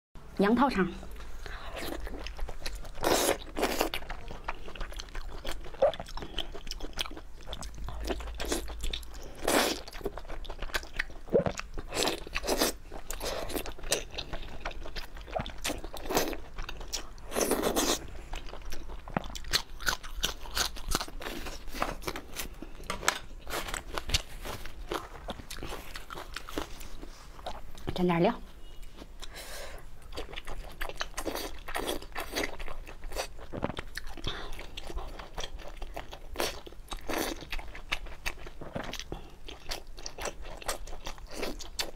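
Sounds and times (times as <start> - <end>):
close-up chewing: 1.2 - 27.9, 28.8 - 41.9.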